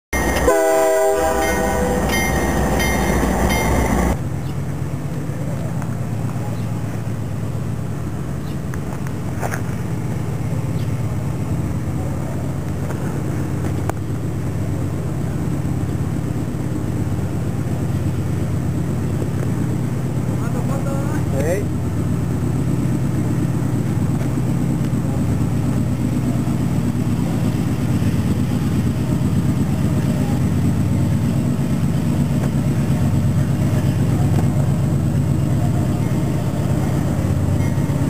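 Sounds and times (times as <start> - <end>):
diesel locomotive rumble: 0.0 - 38.0
locomotive air horn chord: 0.2 - 4.2.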